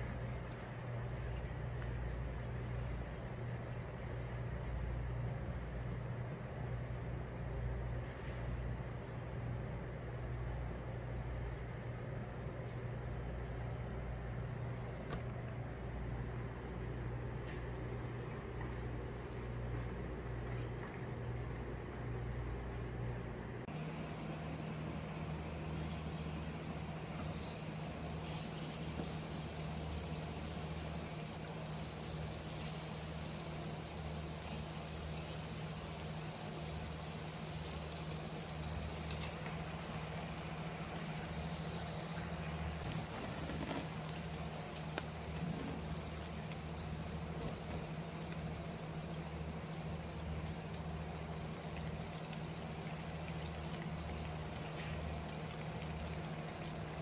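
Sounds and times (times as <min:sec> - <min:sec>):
low hum: 0:21.0 - 0:31.1
oil sizzling: 0:25.5 - 0:57.0.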